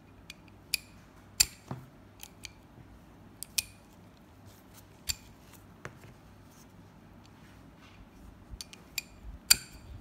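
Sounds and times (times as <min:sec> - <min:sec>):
metal sockets clicking and clinking: 0:03.4 - 0:04.0, 0:08.6 - 0:09.9.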